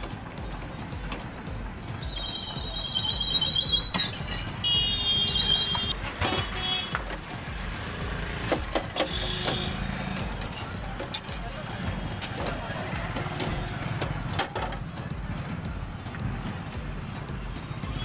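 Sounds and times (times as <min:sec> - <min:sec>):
high electronic beeping: 0:02.0 - 0:06.0.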